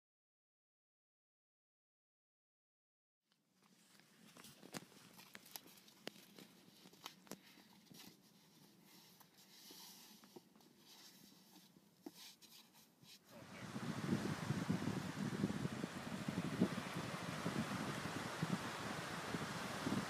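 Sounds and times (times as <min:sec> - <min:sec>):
small clicks and ticks: 0:03.3 - 0:09.4.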